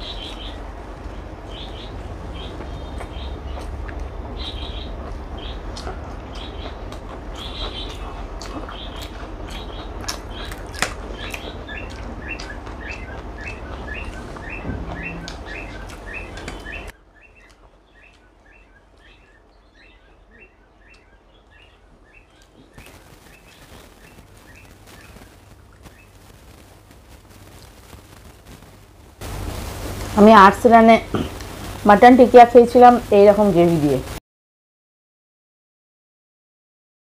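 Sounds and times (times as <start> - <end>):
bird chirping: 0.0 - 26.8
low background noise: 0.0 - 34.2.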